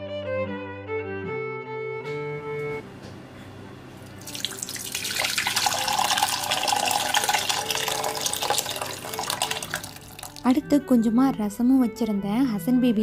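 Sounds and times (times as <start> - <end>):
liquid pouring into a bowl: 4.0 - 10.5.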